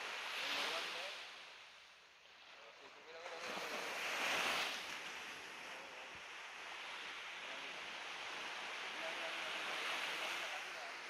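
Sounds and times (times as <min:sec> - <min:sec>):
surf washing onto sandy beach: 0:00.0 - 0:01.6, 0:02.3 - 0:11.0.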